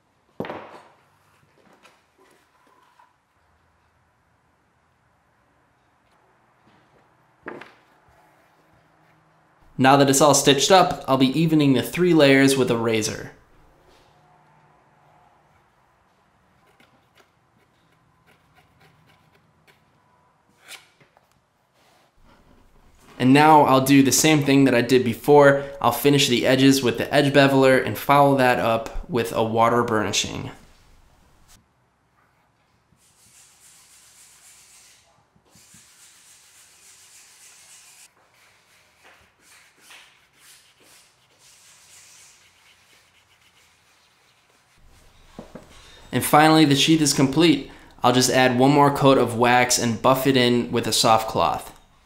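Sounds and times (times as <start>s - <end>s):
razor blade scraping leather: 16.6s - 19.8s
wooden tool rubbing leather edge: 16.6s - 19.9s, 33.1s - 45.6s.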